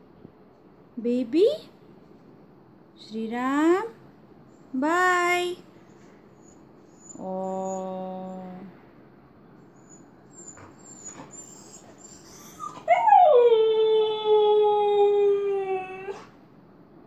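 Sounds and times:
dog howling: 9.8 - 16.2.

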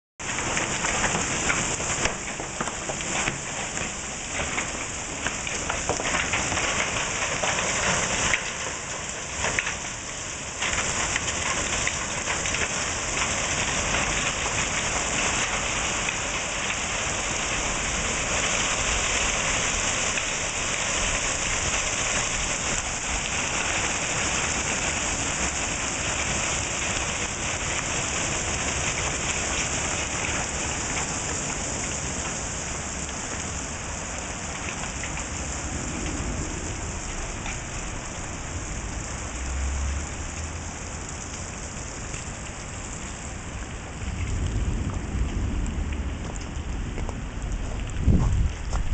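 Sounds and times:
heavy rain and hail falling: 0.2 - 48.9
low rumble: 34.9 - 40.9, 43.7 - 48.9.

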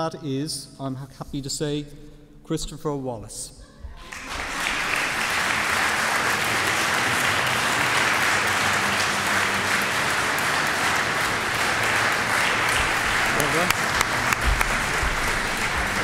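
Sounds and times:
audience applauding: 4.0 - 16.0.

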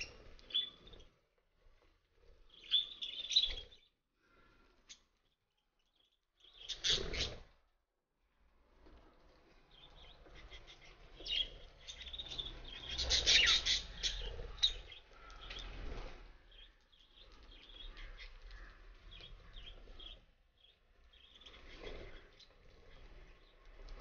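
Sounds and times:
budgerigars chirping and chattering: 0.0 - 1.0, 2.5 - 3.8, 6.4 - 7.4, 9.8 - 15.8, 16.5 - 22.2.

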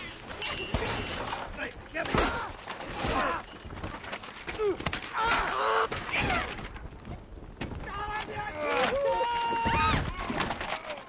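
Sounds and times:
people shouting and exclaiming: 7.8 - 11.0.

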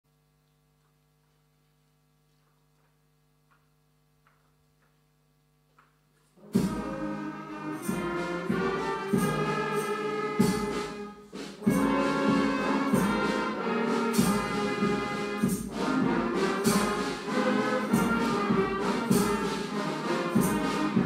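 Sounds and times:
faint steady hum: 0.1 - 6.5
band of horns and drums playing: 6.4 - 21.0.

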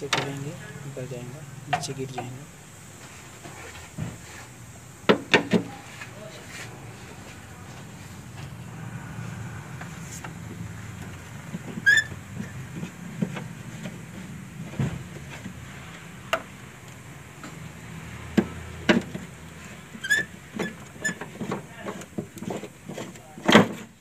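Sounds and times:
steady low hum: 0.0 - 19.9
short high squeak: 11.8 - 12.2.

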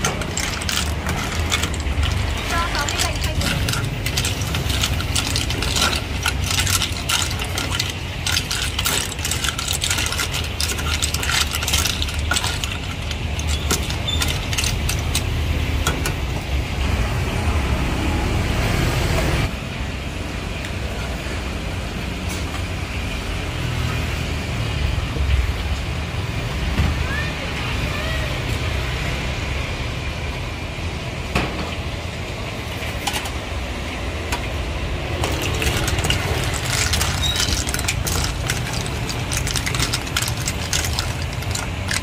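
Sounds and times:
shells clinking and clattering: 0.0 - 16.1, 35.2 - 42.0
ladle clattering against metal pot: 0.0 - 16.2, 35.2 - 42.0.

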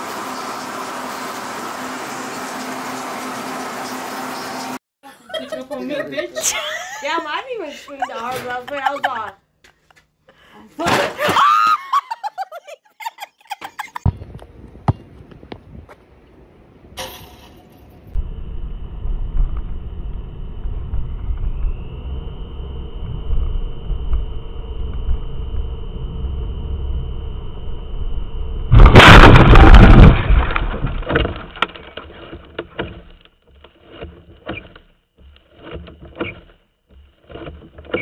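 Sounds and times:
car road and engine noise: 0.0 - 4.8
loud car crash impact: 28.7 - 31.8.

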